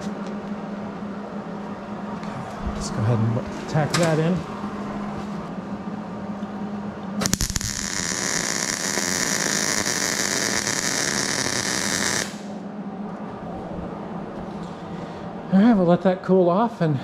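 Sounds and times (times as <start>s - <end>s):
welder arc crackling and hissing: 7.2s - 12.6s.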